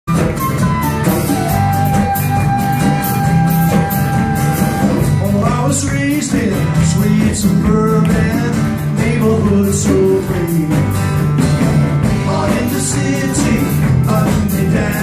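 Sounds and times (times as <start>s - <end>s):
rock band playing: 0.1s - 15.0s
flute long note: 0.4s - 5.0s.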